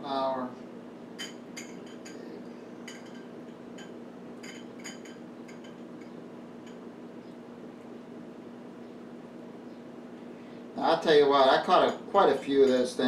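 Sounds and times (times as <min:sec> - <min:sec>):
steady low hum: 0:00.0 - 0:13.0
clinks against a bowl: 0:01.2 - 0:06.9, 0:11.7 - 0:13.0.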